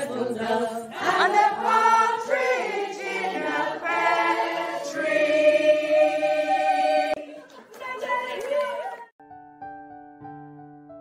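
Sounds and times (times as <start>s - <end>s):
group singing a carol: 0.0s - 7.3s.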